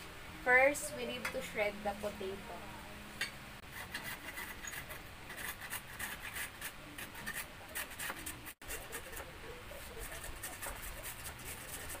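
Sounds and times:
potato grated on metal grater: 0:03.6 - 0:12.0.

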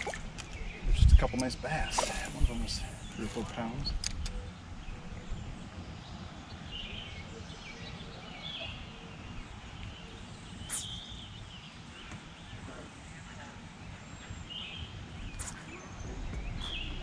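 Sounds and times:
wind on microphone: 0:00.0 - 0:07.3, 0:14.8 - 0:17.0
bird chirps: 0:00.5 - 0:05.4, 0:09.9 - 0:11.6, 0:14.5 - 0:17.0.

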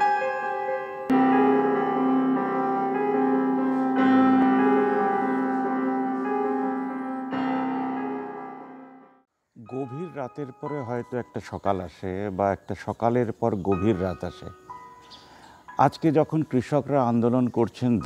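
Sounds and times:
held keyboard chords: 0:00.0 - 0:11.4.

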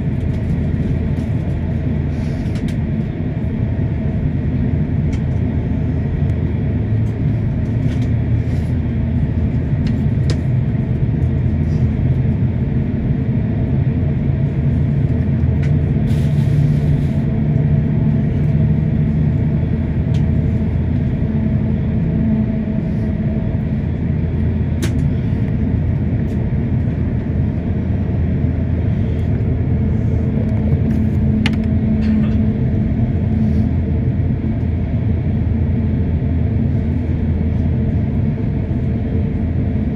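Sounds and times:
airliner cabin rumble: 0:00.0 - 0:39.9.

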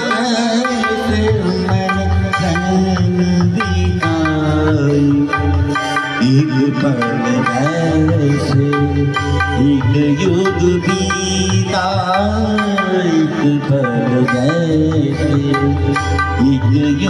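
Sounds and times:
backing music: 0:00.0 - 0:17.0
man singing into microphone: 0:00.0 - 0:17.0.

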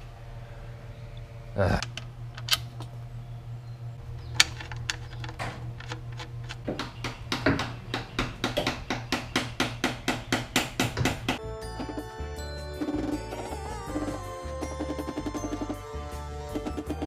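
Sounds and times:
low steady hum: 0:00.0 - 0:17.0
sharp evenly spaced taps: 0:06.6 - 0:12.0, 0:12.8 - 0:15.9, 0:16.5 - 0:17.0.

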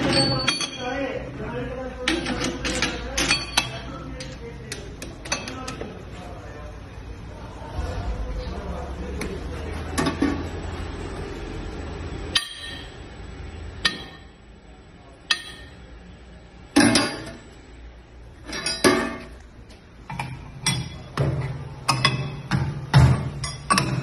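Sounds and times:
metal parts clanking: 0:18.4 - 0:19.4.

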